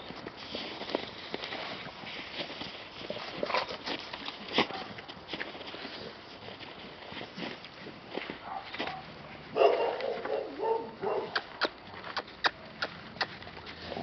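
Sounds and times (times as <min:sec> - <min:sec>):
dogs barking and yipping: 0:08.4 - 0:11.8.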